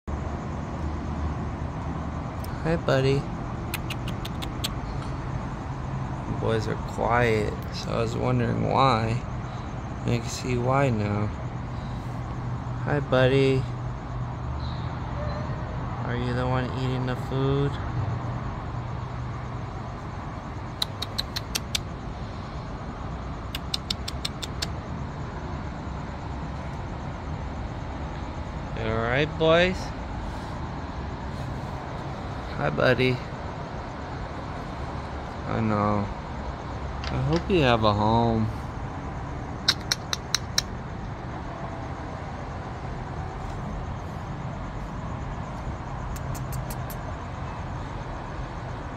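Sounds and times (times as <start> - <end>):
sharp clicks: 3.7 - 5.1, 20.7 - 21.9, 23.5 - 24.8, 39.6 - 40.8, 46.1 - 47.1
low rumble and hiss: 24.7 - 39.7
short sharp clicks: 39.6 - 40.7.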